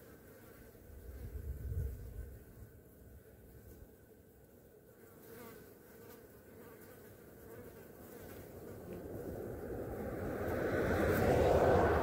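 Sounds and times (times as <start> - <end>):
flies buzzing: 0.0 - 12.0
low rushing noise: 8.5 - 12.0.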